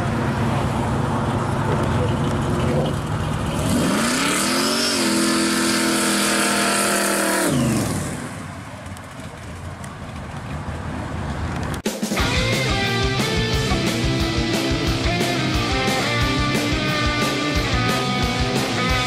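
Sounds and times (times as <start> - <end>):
supercharged car engine passing: 0.0 - 8.7.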